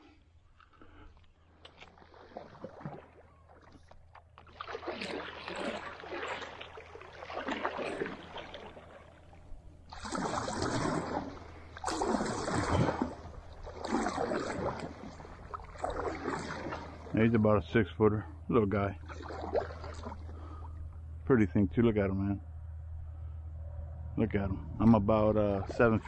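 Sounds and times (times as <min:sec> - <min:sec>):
kayak paddle splashing water: 0:01.5 - 0:17.7, 0:19.0 - 0:21.0.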